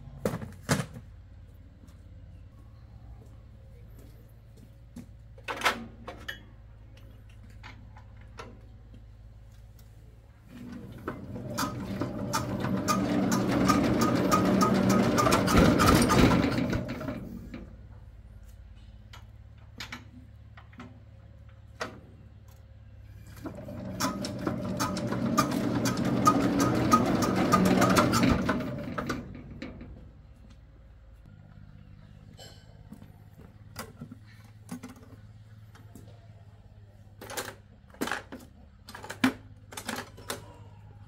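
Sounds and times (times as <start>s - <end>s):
diesel engine being hand-cranked: 10.8s - 18.0s, 23.1s - 30.2s.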